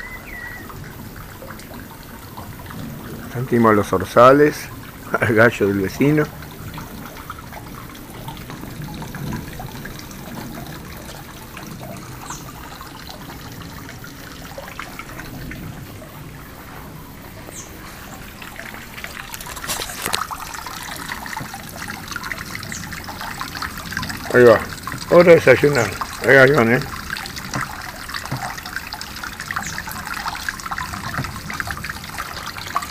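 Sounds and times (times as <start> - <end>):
bird chirps: 0.0 - 0.7
water trickling into pond: 0.0 - 32.9.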